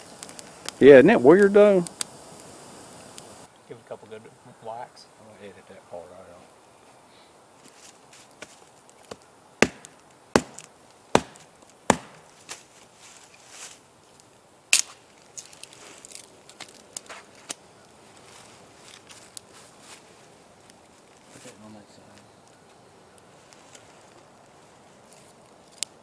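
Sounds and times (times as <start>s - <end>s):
wood knocking and cracking: 8.4s - 12.4s
knife chopping wood: 9.1s - 12.3s.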